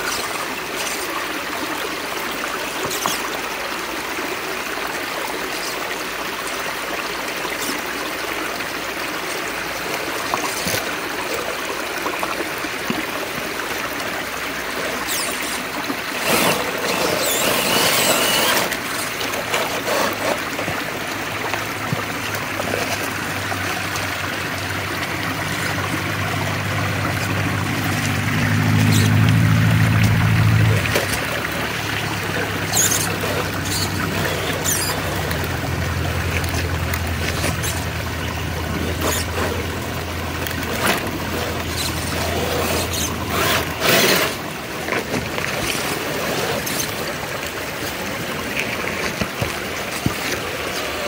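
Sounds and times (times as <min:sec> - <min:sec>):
creek trickling over rocks: 0:00.0 - 0:51.0
electric motor hum: 0:14.8 - 0:20.8.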